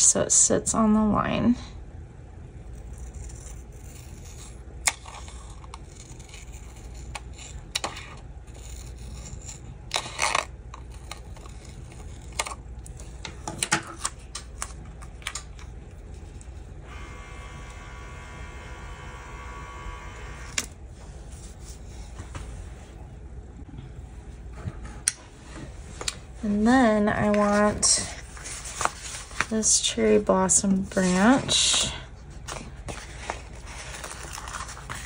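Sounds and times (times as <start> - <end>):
paper rustling: 27.3 - 29.7, 32.4 - 35.0.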